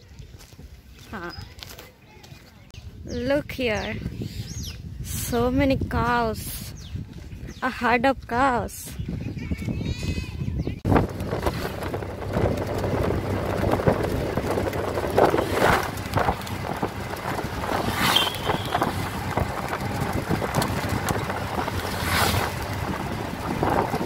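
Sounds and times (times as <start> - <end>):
wind buffeting microphone: 2.7 - 24.0
vehicle road rumble: 9.0 - 24.0
passing traffic: 10.8 - 24.0.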